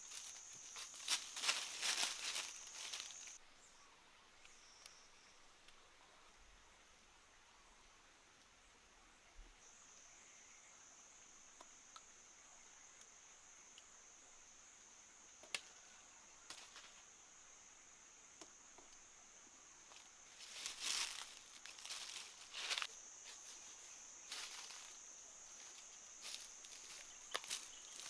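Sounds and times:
high-pitched insect drone: 0:00.0 - 0:03.4
rustling and crinkling: 0:00.0 - 0:03.4, 0:19.9 - 0:23.7, 0:25.6 - 0:28.0.

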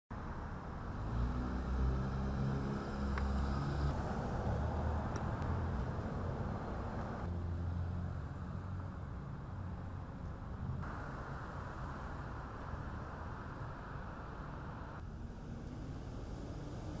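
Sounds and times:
street traffic: 0:00.1 - 0:17.0
vehicle engine humming: 0:00.1 - 0:17.0.

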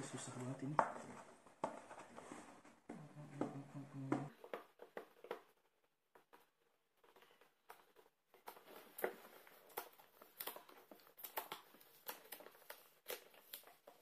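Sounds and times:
cardboard rustling: 0:04.3 - 0:14.0.

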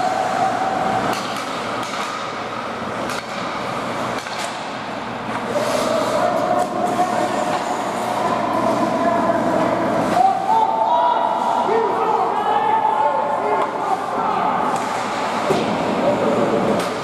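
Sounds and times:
steady hum: 0:00.0 - 0:17.0
hockey sticks and puck clacking: 0:00.8 - 0:10.4, 0:14.7 - 0:17.0.

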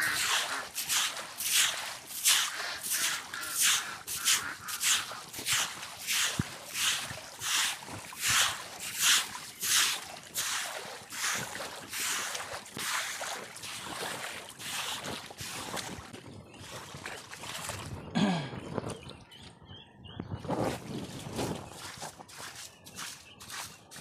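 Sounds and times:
broom scrubbing under water: 0:00.0 - 0:16.1.

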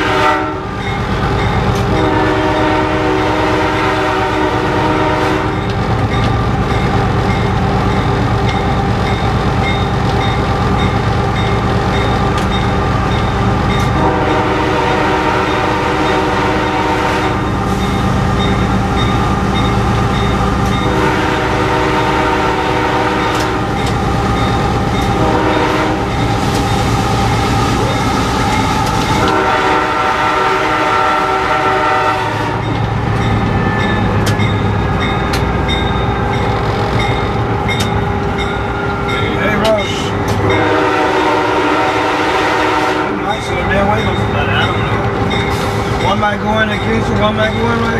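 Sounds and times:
locomotive air horn blasts: 0:00.0 - 0:00.8, 0:01.8 - 0:05.6, 0:13.9 - 0:17.7, 0:20.8 - 0:23.7, 0:25.1 - 0:26.2, 0:29.1 - 0:32.7, 0:40.4 - 0:43.4.

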